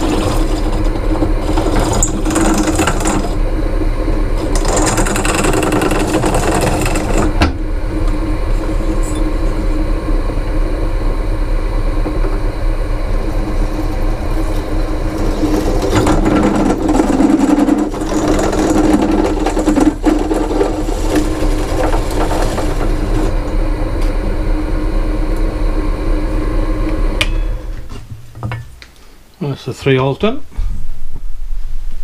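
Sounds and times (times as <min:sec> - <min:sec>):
drill bit cutting copper pipe: 0:00.0 - 0:03.4, 0:04.4 - 0:10.1, 0:12.0 - 0:23.6
drill motor hum: 0:00.0 - 0:27.9.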